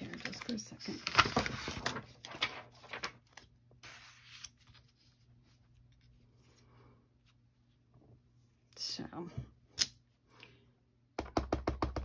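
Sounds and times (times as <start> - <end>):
paper rustling and soft taps: 0.0 - 6.3.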